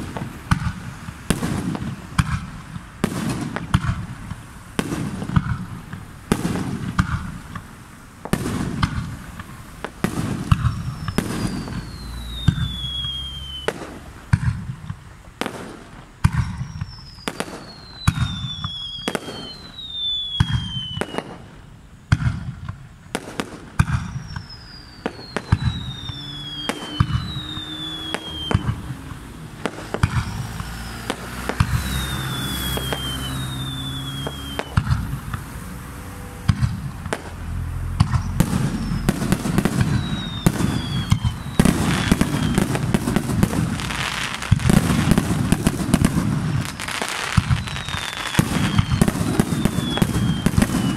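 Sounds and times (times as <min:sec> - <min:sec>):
firework shell bursts: 0:00.0 - 0:35.6, 0:38.0 - 0:50.9
crackling hiss of fireworks: 0:00.0 - 0:50.9
firework whistles dropping in pitch: 0:10.1 - 0:14.6, 0:16.2 - 0:21.7, 0:23.4 - 0:35.4, 0:38.0 - 0:50.9.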